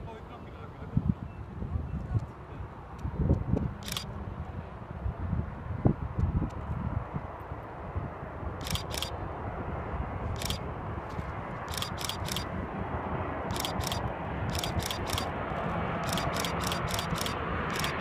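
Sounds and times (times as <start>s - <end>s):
jet engines rumbling: 2.3s - 18.0s
camera shutter clicking: 3.8s - 4.1s, 8.6s - 9.2s, 10.4s - 10.6s, 11.7s - 12.5s, 13.5s - 15.3s, 16.0s - 18.0s.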